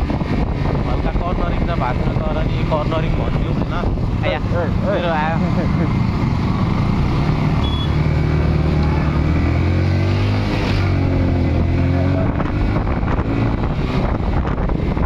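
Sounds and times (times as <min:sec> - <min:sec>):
motorcycle engine running: 0:00.0 - 0:09.4
wind rushing over microphone: 0:00.0 - 0:15.0.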